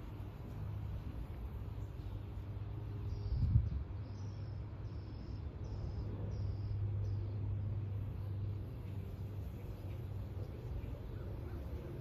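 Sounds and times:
low steady hum: 0.0s - 12.0s.

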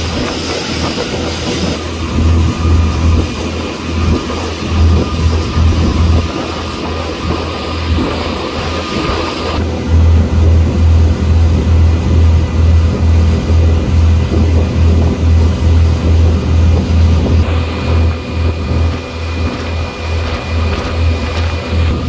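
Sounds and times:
motorboat engine drone: 0.0s - 22.0s.

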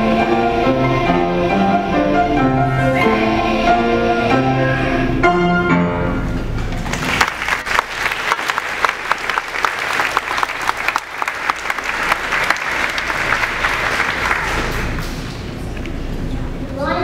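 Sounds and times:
audience applauding: 6.7s - 15.3s.

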